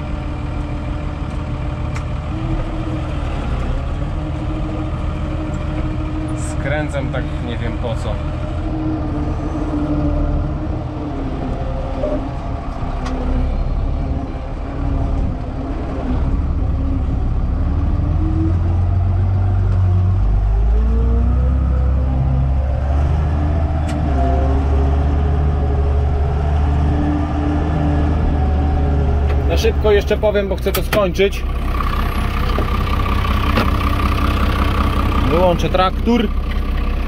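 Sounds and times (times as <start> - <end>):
tractor diesel engine under load: 0.0 - 37.0.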